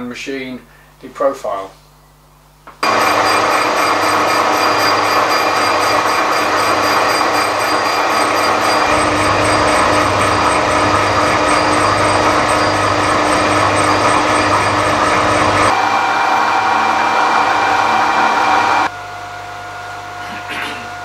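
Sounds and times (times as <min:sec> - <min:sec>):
lathe cutting with ringing squeal: 0:02.8 - 0:18.9
lathe running: 0:02.8 - 0:18.9.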